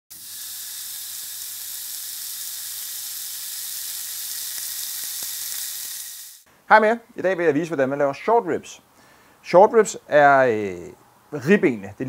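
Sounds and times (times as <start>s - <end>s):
meat sizzling on grill: 0.1s - 6.5s.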